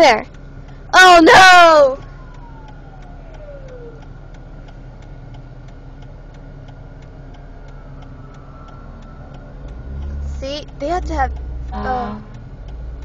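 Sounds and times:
car interior hum: 0.0s - 13.0s
turn signal ticking: 0.0s - 13.0s
siren wailing: 1.0s - 4.3s, 7.2s - 10.4s.

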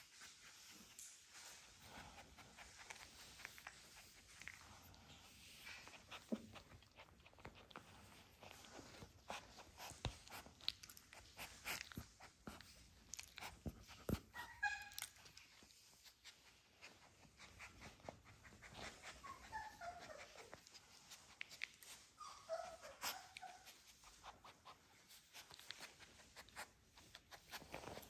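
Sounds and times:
puppies whining: 13.4s - 15.7s, 16.8s - 24.9s.

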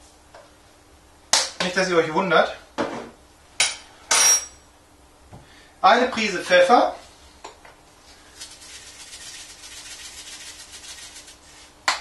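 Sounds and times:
pepper mill grinding: 8.3s - 11.6s.

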